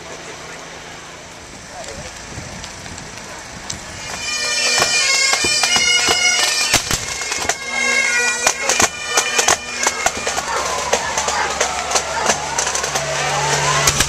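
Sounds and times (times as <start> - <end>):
bagpipes playing melody over drone: 3.8 - 14.0
sharp drum strokes: 8.4 - 14.0.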